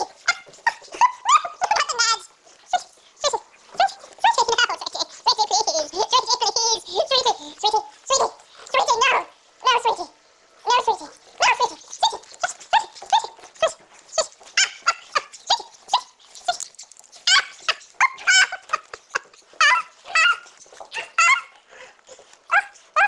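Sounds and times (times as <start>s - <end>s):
puppy yapping: 0.0s - 4.8s, 11.3s - 23.0s.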